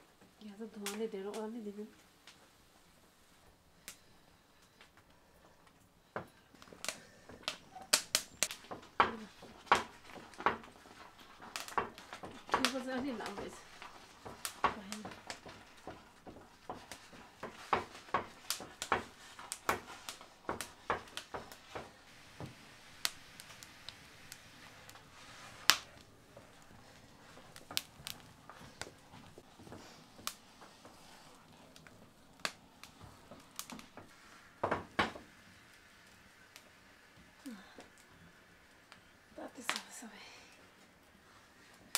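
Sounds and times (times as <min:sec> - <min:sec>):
wooden stick scraping metal pot: 0:06.6 - 0:22.0.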